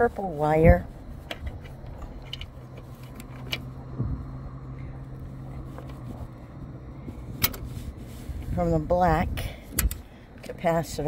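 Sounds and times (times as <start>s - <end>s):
steady low hum: 0.0s - 11.0s
pliers and metal connectors clicking: 1.2s - 3.8s, 9.7s - 10.6s.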